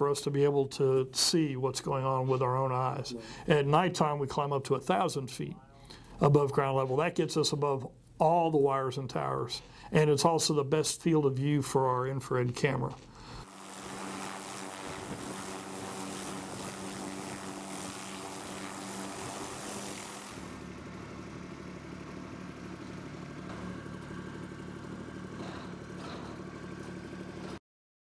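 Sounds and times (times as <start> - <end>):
engine hum with high hiss: 13.2 - 27.6
small tractor engine running: 13.4 - 27.6.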